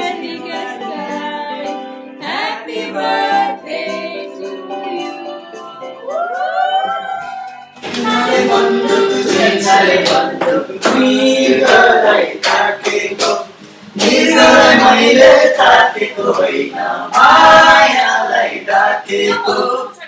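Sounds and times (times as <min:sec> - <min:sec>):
group singing: 0:00.0 - 0:20.0
acoustic guitars strumming: 0:07.2 - 0:20.0.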